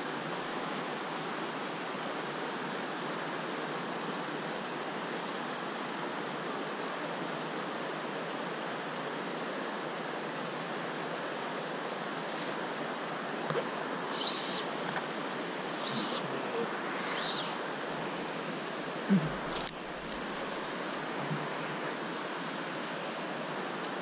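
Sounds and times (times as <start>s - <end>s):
bird chirping: 12.2s - 12.6s, 13.4s - 14.7s, 15.7s - 17.6s.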